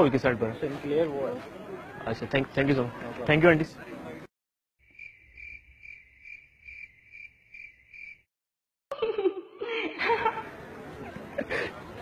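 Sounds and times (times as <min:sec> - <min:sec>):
cricket chirping: 0:04.8 - 0:08.3.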